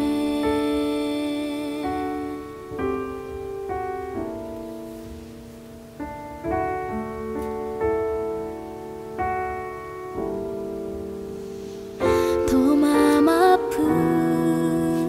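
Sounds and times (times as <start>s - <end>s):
slow piano chords: 0.0s - 15.0s.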